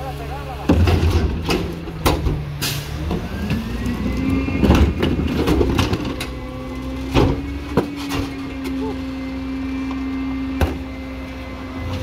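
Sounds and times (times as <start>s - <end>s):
truck engine revving: 0.0s - 12.0s
plastic carts banging: 4.6s - 6.4s.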